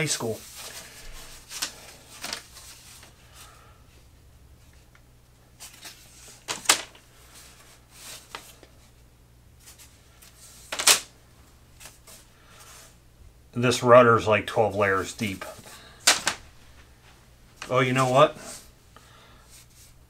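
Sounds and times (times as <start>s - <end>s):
thin wood sheets rustling: 0.0s - 3.6s, 5.5s - 9.0s, 9.6s - 11.1s, 11.7s - 13.0s, 14.7s - 20.0s.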